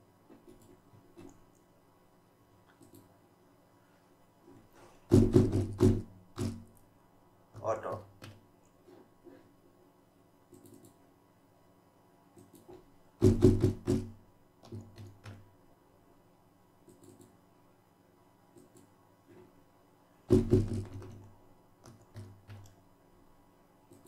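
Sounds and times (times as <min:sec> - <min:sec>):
typing on keyboard: 0:02.7 - 0:03.1, 0:10.5 - 0:11.0, 0:12.4 - 0:15.4, 0:16.9 - 0:17.4, 0:20.3 - 0:22.8.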